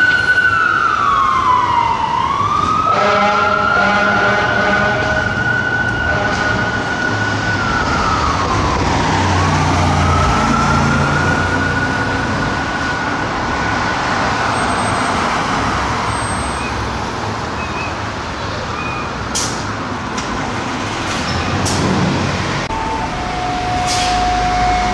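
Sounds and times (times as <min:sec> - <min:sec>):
fire engine siren wailing: 0:00.0 - 0:17.1, 0:21.5 - 0:24.9
city traffic noise: 0:00.0 - 0:24.9
heavy engine rumble: 0:16.9 - 0:24.9.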